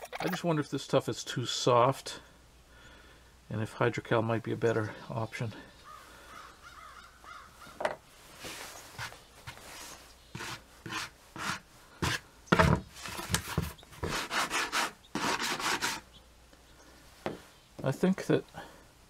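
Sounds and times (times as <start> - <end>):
sanding sponge rubbing: 8.4 - 12.2, 13.0 - 16.0.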